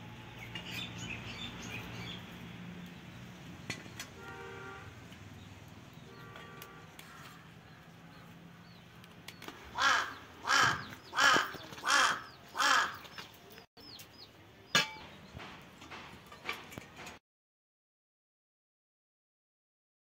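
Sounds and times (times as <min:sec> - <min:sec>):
crow cawing: 0:07.0 - 0:07.6, 0:09.7 - 0:13.1.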